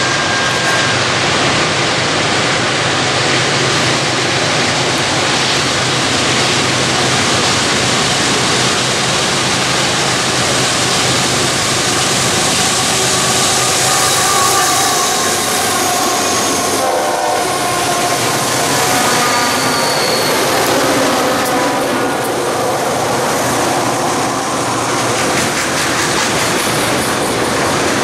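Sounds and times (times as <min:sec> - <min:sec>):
freight train rushing noise: 0:00.0 - 0:28.0
locomotive horn: 0:11.3 - 0:24.9.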